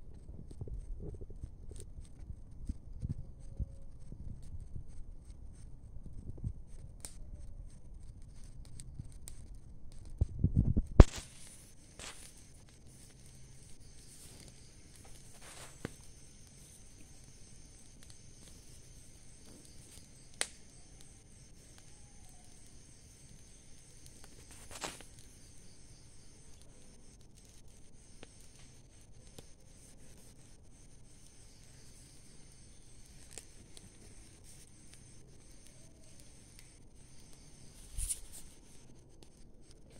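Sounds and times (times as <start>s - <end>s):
burning leaves crackling: 4.4s - 39.9s
steady hiss: 7.8s - 39.9s
faint pops: 10.5s - 12.4s.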